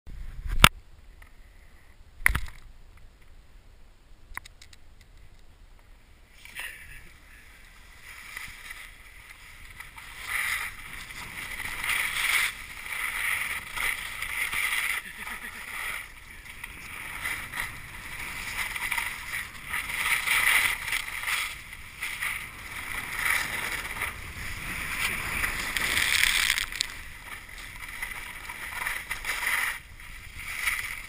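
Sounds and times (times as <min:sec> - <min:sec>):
skis hissing through snow: 0:06.3 - 0:31.0.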